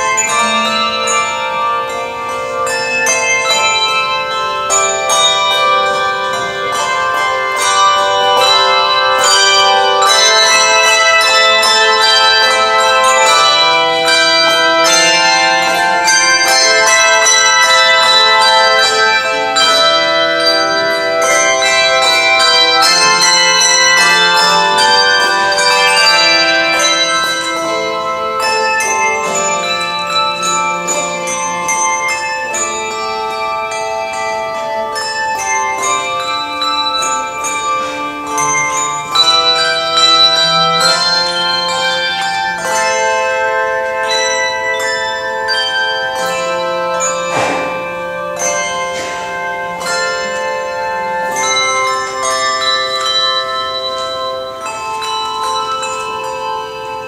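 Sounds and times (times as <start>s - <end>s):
handbell choir ringing chords: 0.0s - 57.0s.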